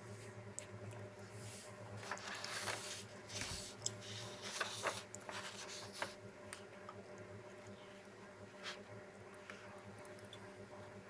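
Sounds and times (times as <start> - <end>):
faint low hum: 0.0 - 11.0
paper rustling and scratching: 2.0 - 6.2.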